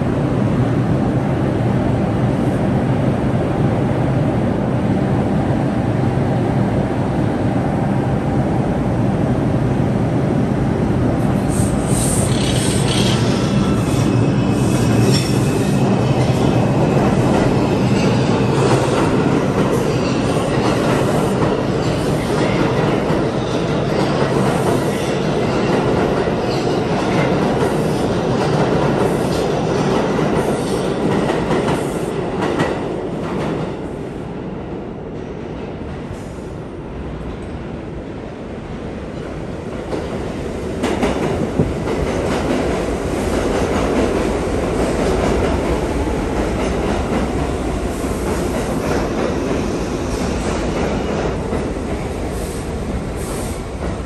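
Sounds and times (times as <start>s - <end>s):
subway train rumbling: 0.0s - 54.0s
rail clatter: 12.2s - 33.7s.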